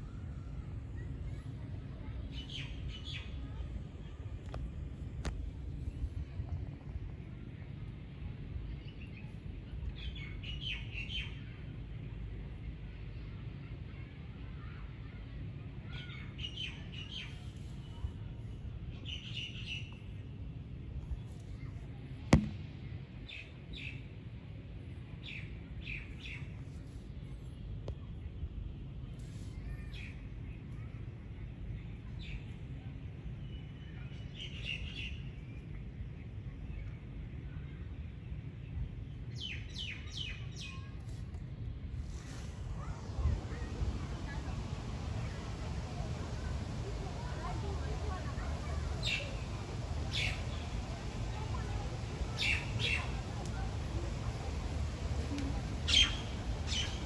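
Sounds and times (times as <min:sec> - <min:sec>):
low background rumble: 0:00.0 - 0:34.0, 0:35.3 - 0:57.0
myna bird calls: 0:52.0 - 0:57.0.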